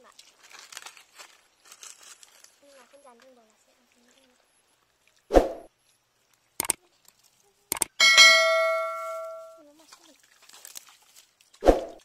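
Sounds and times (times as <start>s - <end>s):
sharp clicks: 6.6s - 6.8s, 7.7s - 8.0s
metallic bell-like ding: 8.0s - 9.6s.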